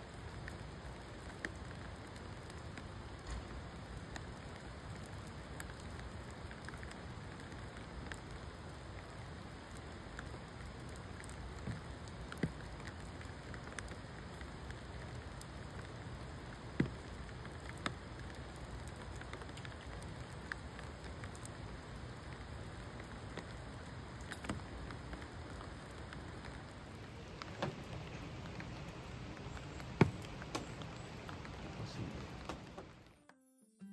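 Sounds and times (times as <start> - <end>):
rain falling: 0.0 - 33.2.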